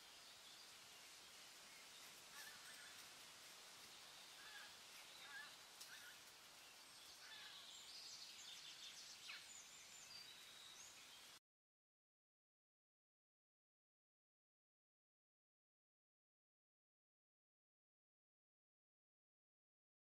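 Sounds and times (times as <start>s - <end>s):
steady hiss: 0.0s - 11.4s.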